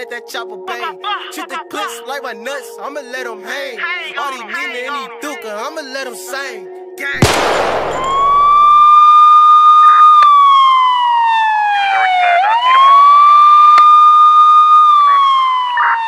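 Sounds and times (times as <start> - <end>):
siren wailing: 8.1 - 16.0.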